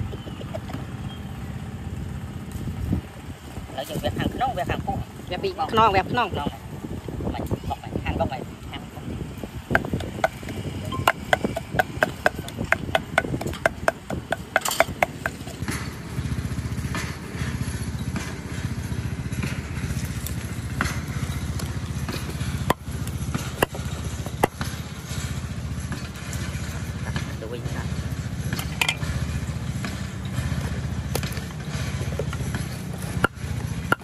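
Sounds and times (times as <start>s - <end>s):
low engine hum: 0.0s - 34.0s
cleaver chopping stalk: 9.7s - 15.9s, 19.4s - 24.8s, 31.1s - 34.0s.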